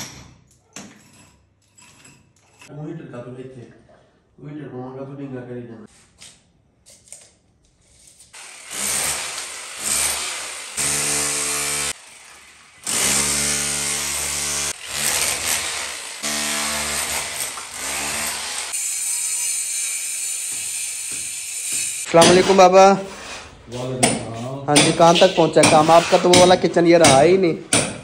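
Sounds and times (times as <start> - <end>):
power tool running: 8.4 - 22.5.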